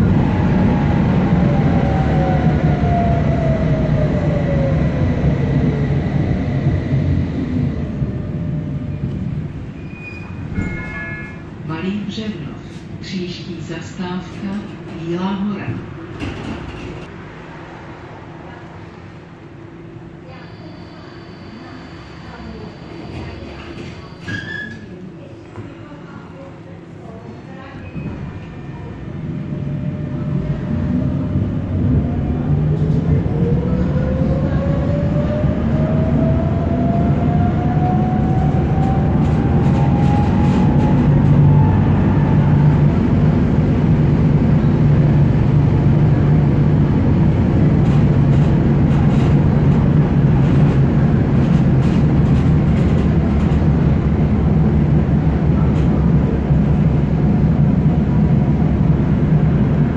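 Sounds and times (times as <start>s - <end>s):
tram motor whine rising: 0.0s - 10.4s, 28.4s - 59.9s
tram running rumble: 0.0s - 59.9s.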